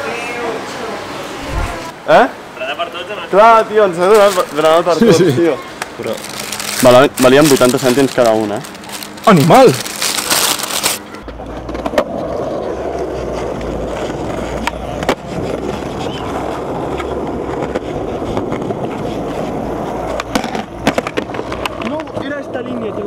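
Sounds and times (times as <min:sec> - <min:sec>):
skateboard wheels rolling on concrete: 0:00.0 - 0:23.0
paper bag crinkling: 0:04.1 - 0:05.0, 0:06.0 - 0:11.0
skateboard clacking on ground: 0:11.2 - 0:23.0.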